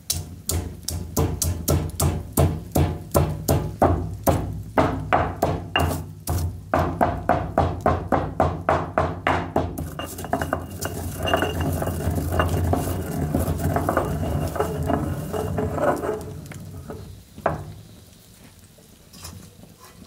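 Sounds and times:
stone pestle pounding in mortar: 0.0 - 16.2
pestle grinding round stone bowl: 0.0 - 17.6.

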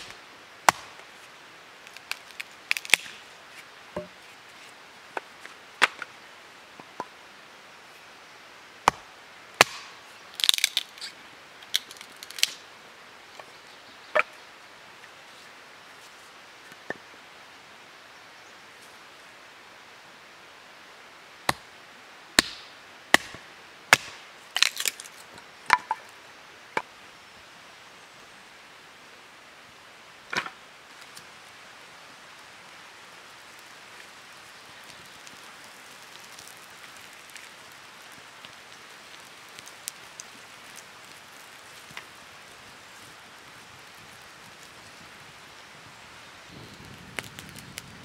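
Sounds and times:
hatchet chopping wood: 0.7 - 1.0, 8.8 - 10.8, 22.4 - 24.8.

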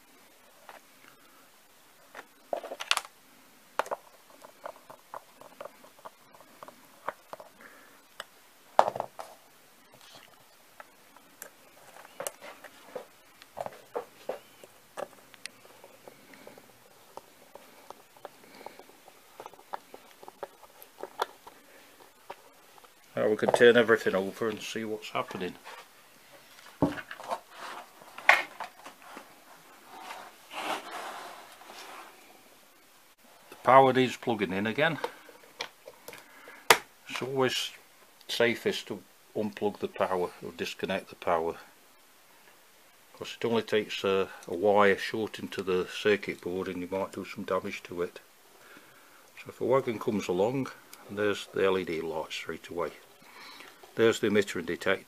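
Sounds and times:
wood rubbing and scraping: 3.8 - 8.0, 8.8 - 32.4.

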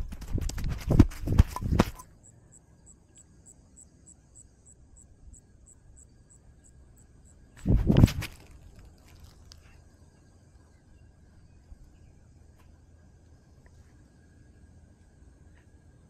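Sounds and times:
rustling and thumps: 0.0 - 2.0, 7.6 - 9.5
insect chirping: 0.0 - 16.0.

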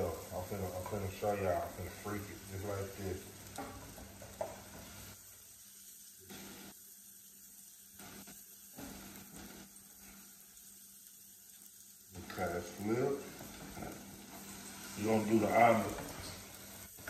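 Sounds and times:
eggs sizzling in a frying pan: 0.0 - 17.0
spatula scraping and tapping pan: 3.5 - 5.0.

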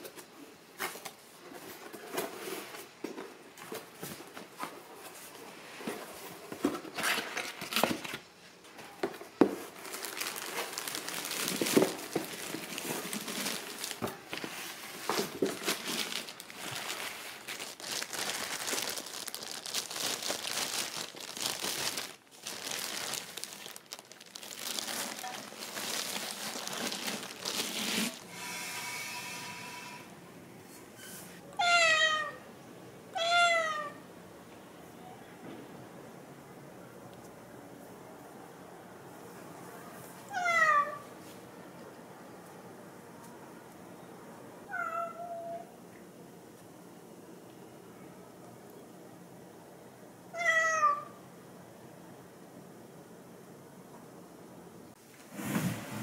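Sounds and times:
plastic bag crinkling: 9.6 - 28.3.

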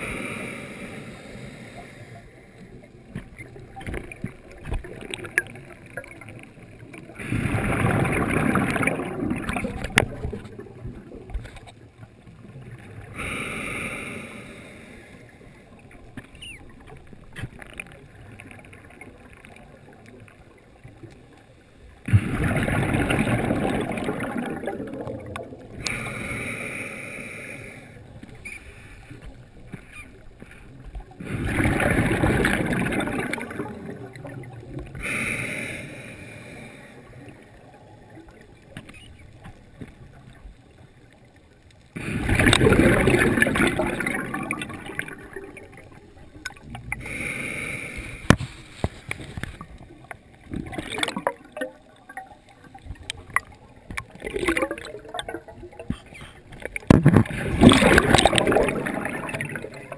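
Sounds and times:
exhaled bubbles underwater: 1.2 - 48.4, 49.2 - 59.9
hissing regulator inhalations: 46.9 - 49.0.

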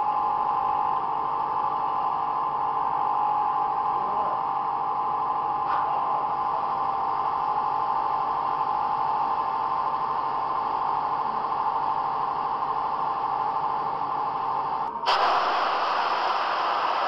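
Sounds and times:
pumping equipment whine and hiss: 0.0 - 17.0.

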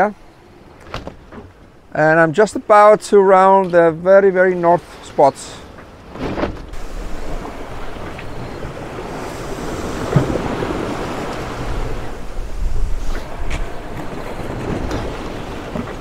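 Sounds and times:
water rushing along a hull: 0.0 - 16.0
wind buffeting microphone: 6.5 - 16.0.

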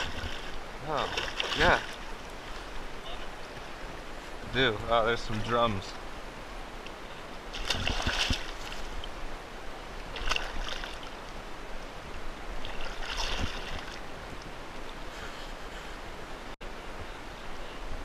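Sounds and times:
water splashing: 0.0 - 15.0
fish thrashing at surface: 7.6 - 8.9.

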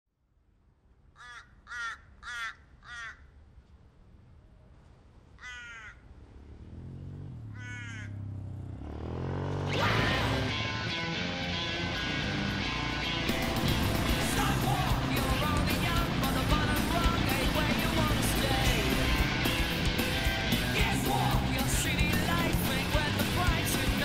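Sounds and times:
crow cawing: 1.1 - 3.4, 5.4 - 6.1, 7.5 - 8.3
dirt bike engine revving: 6.4 - 24.0.

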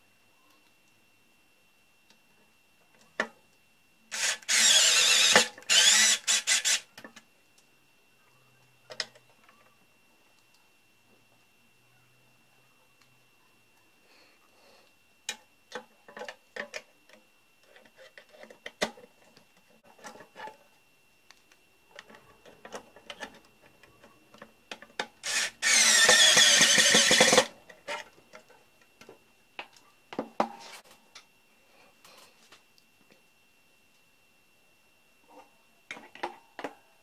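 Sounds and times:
cordless drill driving screw: 4.1 - 6.8, 25.2 - 27.5.

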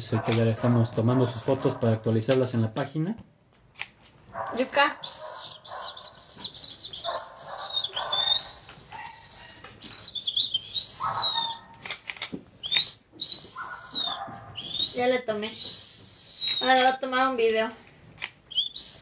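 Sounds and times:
sharp clicks: 2.3 - 2.9, 3.7 - 4.6, 5.4 - 13.6, 15.6 - 17.6, 18.2 - 19.0
high-pitched wavering whistling: 5.0 - 11.7, 12.6 - 16.9, 18.5 - 19.0.

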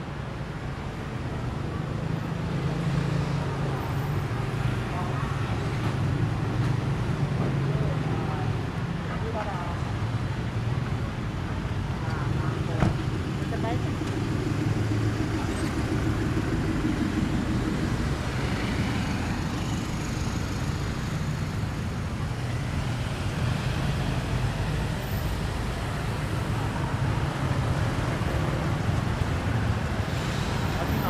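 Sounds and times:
car and motorbike engines passing: 1.6 - 31.0
pickup truck engine: 12.9 - 31.0.

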